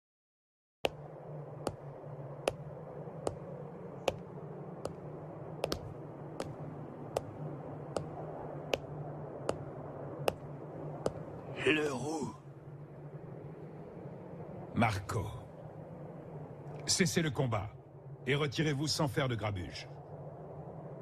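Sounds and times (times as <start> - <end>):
steady low hum: 0.9 - 21.0
sandalled footsteps: 5.6 - 6.6.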